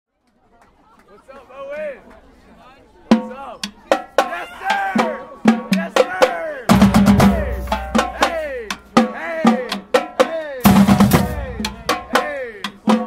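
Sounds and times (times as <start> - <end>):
drumline playing: 3.1 - 13.0
tenor drums ringing: 6.7 - 12.8.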